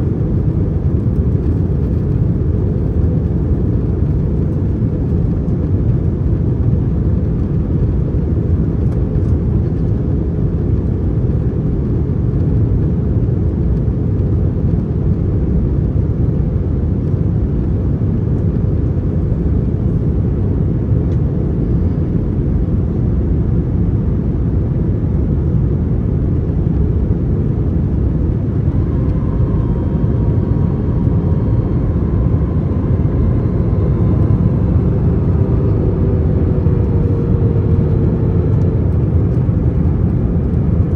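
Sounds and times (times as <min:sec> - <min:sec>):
airplane cabin rumble: 0:00.0 - 0:40.9
faint whining tone: 0:27.9 - 0:40.2.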